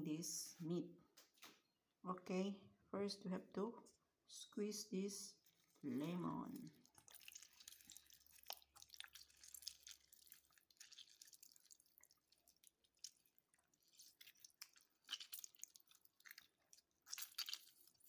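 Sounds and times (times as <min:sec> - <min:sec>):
small crackles: 0:05.4 - 0:18.0
lemon being squeezed by hand: 0:17.0 - 0:18.0.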